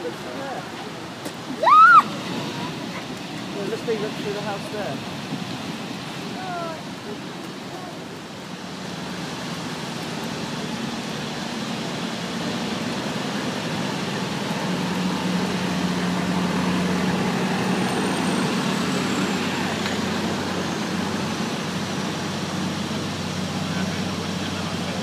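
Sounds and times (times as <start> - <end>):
vehicle engine hum: 0.0 - 25.0
wind: 0.0 - 25.0.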